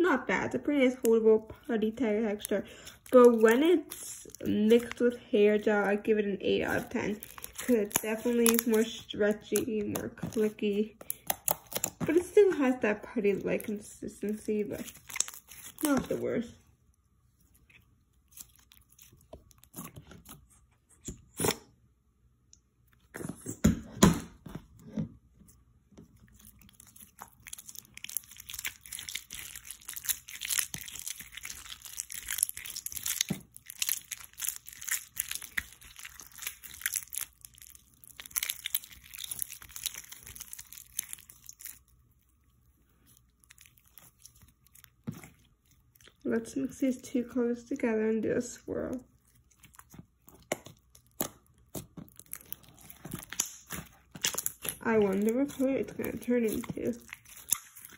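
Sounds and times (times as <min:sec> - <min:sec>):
slime fine crackling: 0:02.1 - 0:16.4, 0:26.4 - 0:42.0, 0:49.3 - 0:57.9.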